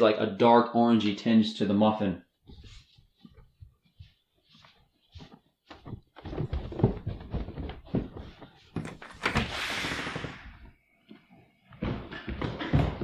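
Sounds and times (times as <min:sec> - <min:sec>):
footsteps: 0:02.3 - 0:13.0
door opening: 0:08.8 - 0:10.7.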